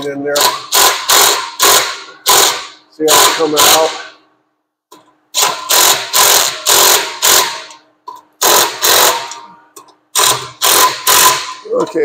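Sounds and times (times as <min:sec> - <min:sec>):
cordless power tool bursts: 0:05.4 - 0:07.7, 0:08.4 - 0:09.3, 0:10.2 - 0:11.6.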